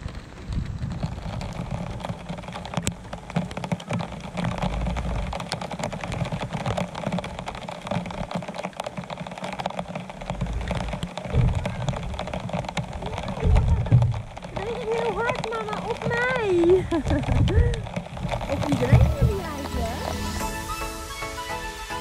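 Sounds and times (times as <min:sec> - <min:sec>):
rain pattering: 0:00.0 - 0:22.0.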